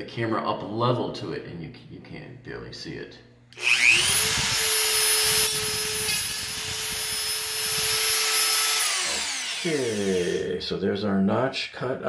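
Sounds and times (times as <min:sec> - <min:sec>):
rotary tool grinding metal: 0:03.6 - 0:10.5.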